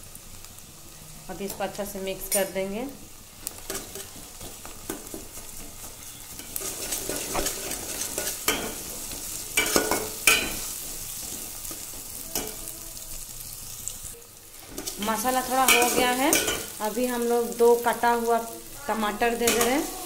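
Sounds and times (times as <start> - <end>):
masala sizzling in a pan: 0.0 - 20.0
utensil scraping and knocking pan: 4.9 - 8.7.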